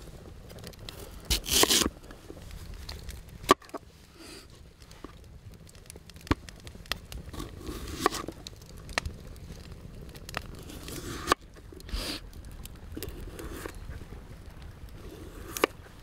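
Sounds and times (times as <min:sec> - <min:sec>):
crisp crunching of broccoli stem: 0:01.3 - 0:01.9.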